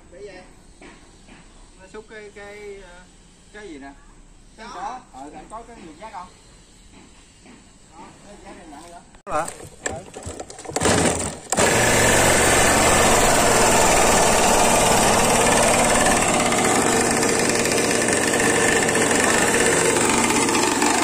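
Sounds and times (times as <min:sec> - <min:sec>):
small two-stroke engine idling: 0:11.1 - 0:21.0.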